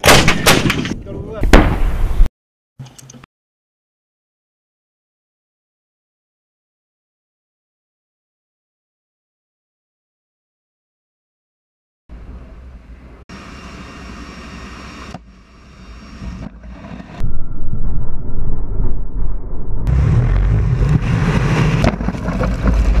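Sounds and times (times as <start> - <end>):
aircraft engine drone: 12.7 - 16.5.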